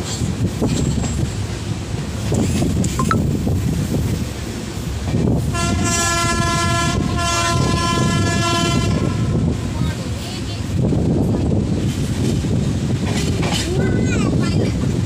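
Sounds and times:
moving train running noise: 0:00.0 - 0:15.0
train horn blasts: 0:05.5 - 0:09.7.

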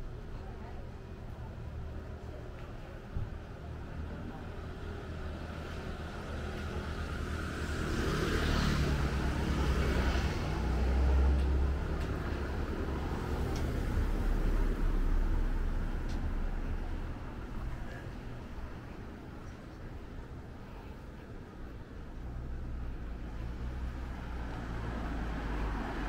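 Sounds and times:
motor vehicle passing: 0:23.4 - 0:26.0.

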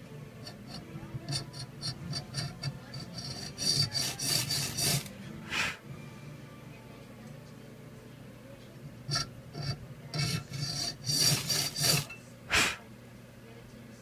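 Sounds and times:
hacksaw scraping on metal rod: 0:00.4 - 0:05.7, 0:09.1 - 0:12.2.

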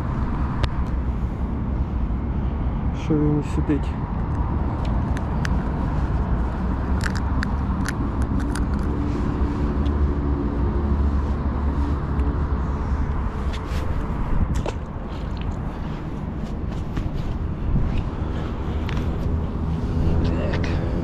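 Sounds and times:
faint engine hum: 0:00.0 - 0:21.0
clicks of handling fishing lure: 0:07.0 - 0:08.9.

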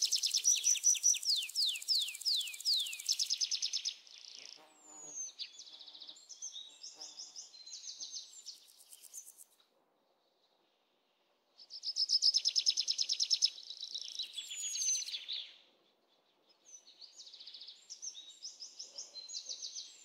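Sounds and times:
birds trilling and chirping: 0:00.0 - 0:04.4.

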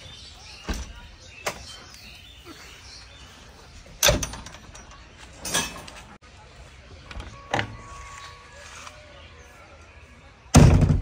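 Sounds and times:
metal clunks and knocks: 0:04.0 - 0:06.1.

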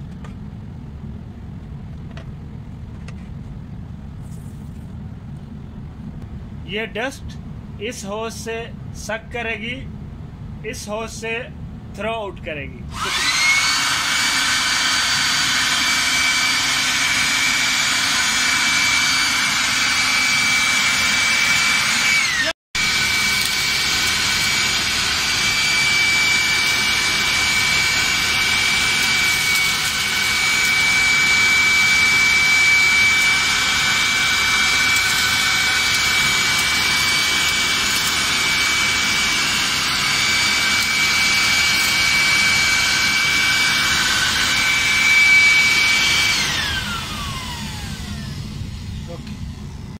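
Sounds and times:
electric blower whining: 0:12.9 - 0:49.9.

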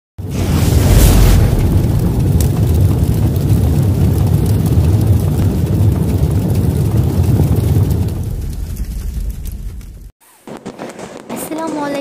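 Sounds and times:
deep cinematic rumble: 0:00.2 - 0:10.1.

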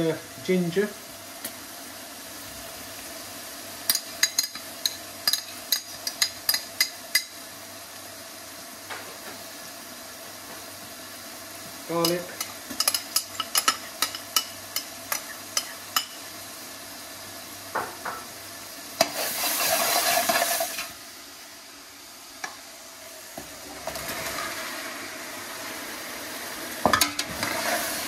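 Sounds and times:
food sizzling in oil: 0:00.0 - 0:28.0
metal spoon clinking on pot: 0:03.9 - 0:07.3, 0:12.0 - 0:16.2.

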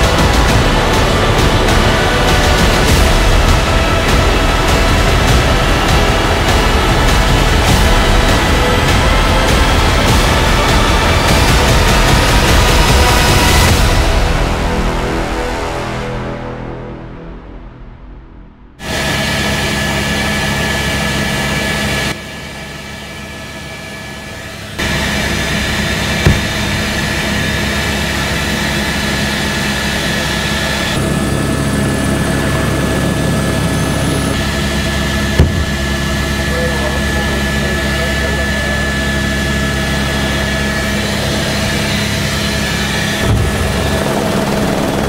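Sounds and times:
helicopter engine and rotor drone: 0:00.0 - 0:15.7, 0:18.8 - 0:45.0
sharp knocks: 0:26.2 - 0:26.8, 0:35.4 - 0:36.0.

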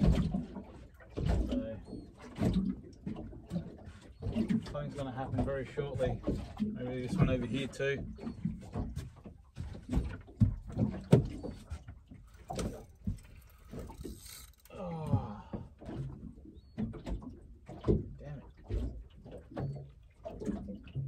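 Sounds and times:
fishing rod knocking and clattering: 0:08.2 - 0:16.1.

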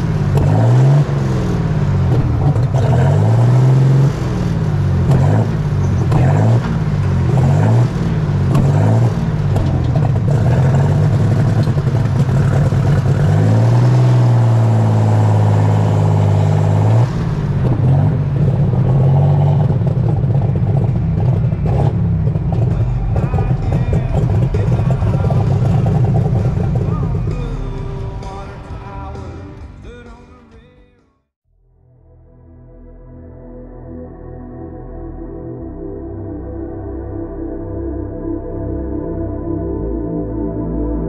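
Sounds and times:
tractor diesel engine revving: 0:00.0 - 0:30.3.

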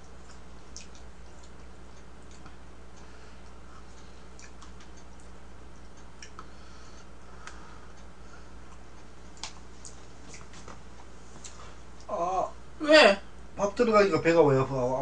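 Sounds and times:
steady low hum: 0:00.0 - 0:15.0
mouth eating sounds: 0:04.4 - 0:05.4.

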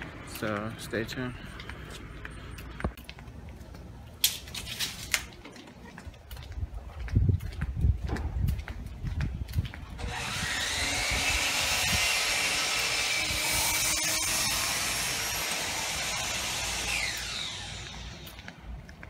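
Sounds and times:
small motor whining: 0:10.0 - 0:18.3.

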